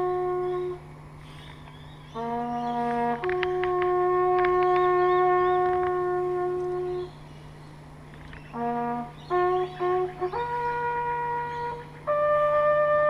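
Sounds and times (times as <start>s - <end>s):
bugle held notes: 0.0s - 13.0s.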